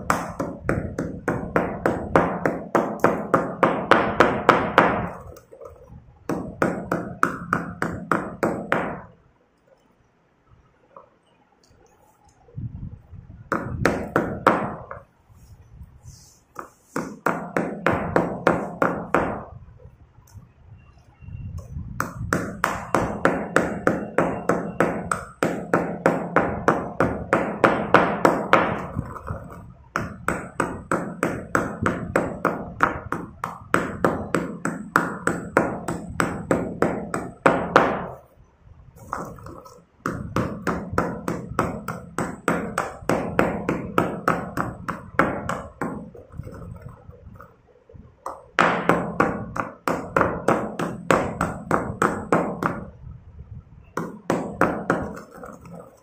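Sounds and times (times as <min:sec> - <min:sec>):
pestle pounding in stone mortar: 0:00.0 - 0:05.2, 0:06.3 - 0:09.1, 0:13.5 - 0:15.0, 0:16.6 - 0:19.5, 0:22.0 - 0:38.2, 0:39.0 - 0:47.4, 0:48.3 - 0:53.0, 0:54.0 - 0:56.0.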